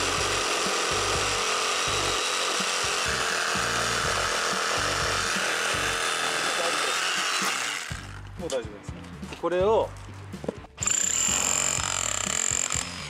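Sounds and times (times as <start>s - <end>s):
reciprocating saw cutting wood: 0.0s - 8.3s, 10.8s - 13.0s.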